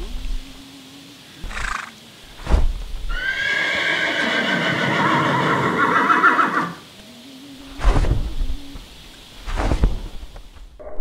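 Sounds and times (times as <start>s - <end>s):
heavy thuds: 2.3s - 3.0s, 7.8s - 8.6s
horse neighing: 3.1s - 6.8s.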